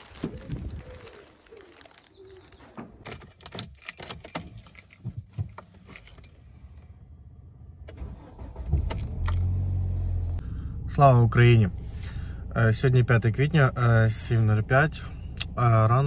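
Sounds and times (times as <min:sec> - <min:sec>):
pigeon cooing: 0:00.1 - 0:02.6
car keys jangling: 0:03.0 - 0:06.8.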